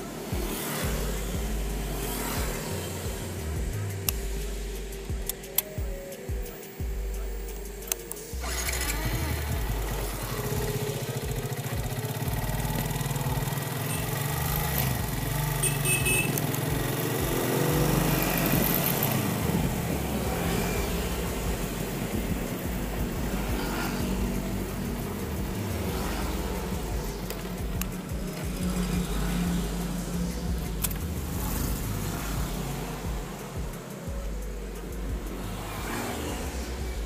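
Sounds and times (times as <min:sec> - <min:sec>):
motorcycle riding: 0:00.0 - 0:37.0
street noise: 0:00.0 - 0:37.0
wind: 0:00.0 - 0:37.0
clicks: 0:05.1 - 0:06.7, 0:07.5 - 0:09.0, 0:30.6 - 0:31.7.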